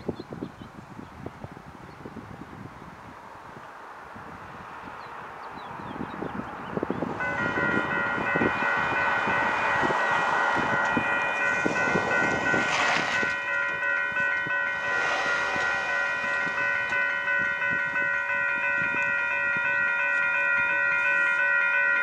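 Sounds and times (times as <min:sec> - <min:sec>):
train rumbling on rails: 0:02.3 - 0:22.0
locomotive air horn: 0:07.2 - 0:22.0.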